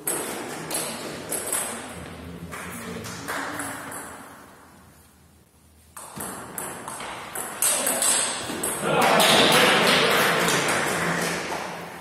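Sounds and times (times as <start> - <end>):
table tennis ball hits: 0.0 - 2.0, 2.6 - 4.4, 6.0 - 12.0.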